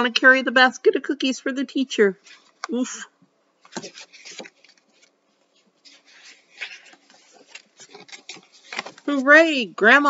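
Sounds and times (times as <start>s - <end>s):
book pages turning: 3.6s - 9.6s.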